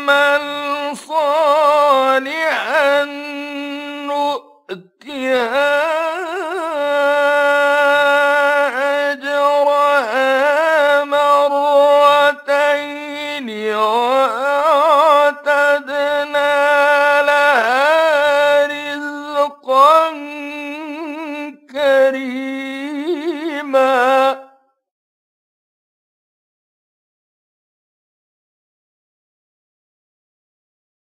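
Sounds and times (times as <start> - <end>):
man reciting melodically: 0.0 - 24.6.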